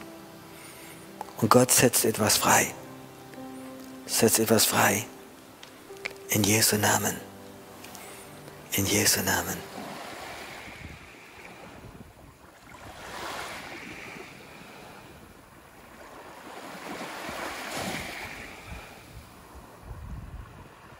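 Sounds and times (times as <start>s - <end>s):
small waves on sandy beach: 9.5s - 20.9s.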